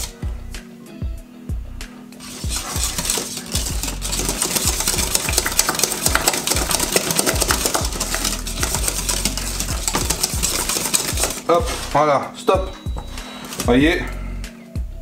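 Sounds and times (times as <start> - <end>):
whisk scraping metal saucepan: 2.2 - 12.1.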